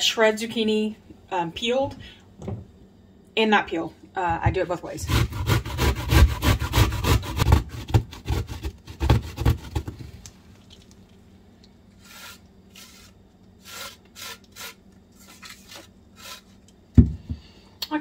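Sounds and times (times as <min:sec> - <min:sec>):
zucchini grated on metal grater: 0:05.0 - 0:09.8, 0:12.0 - 0:16.4.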